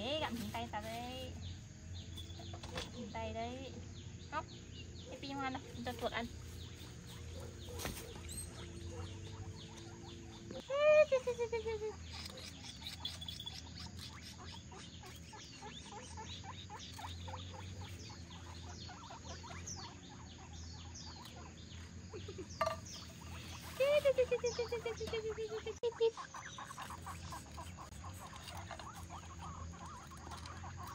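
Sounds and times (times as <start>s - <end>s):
guinea pigs squeaking and chirping: 0.0s - 30.9s
guinea pig pulsed squeal: 5.1s - 30.9s.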